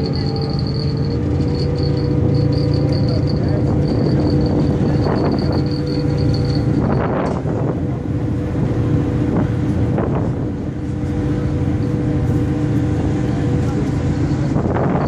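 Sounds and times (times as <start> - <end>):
ferry engine droning: 0.0 - 15.0
water rushing in wake: 0.0 - 15.0
wind gusts on microphone: 3.4 - 11.0, 13.1 - 15.0.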